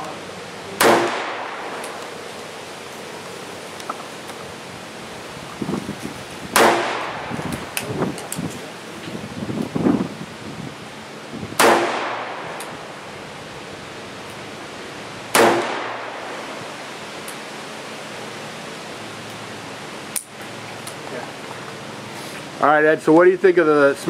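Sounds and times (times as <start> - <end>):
revolver gunshots: 0.8 - 2.2, 6.5 - 7.4, 11.6 - 12.6, 15.3 - 16.6.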